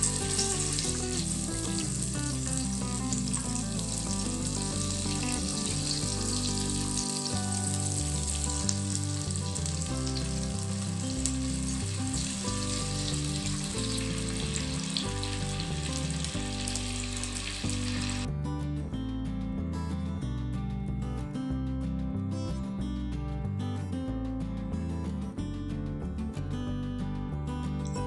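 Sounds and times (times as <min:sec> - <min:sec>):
butter sizzling in a pan: 0:00.0 - 0:18.3
background music: 0:00.0 - 0:28.0.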